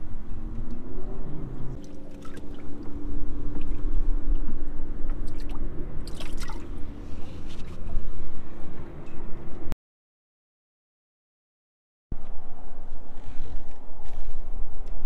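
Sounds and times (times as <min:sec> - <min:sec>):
steady low hum: 0:00.0 - 0:09.8
fish splashing in water: 0:01.8 - 0:03.8, 0:05.2 - 0:06.7.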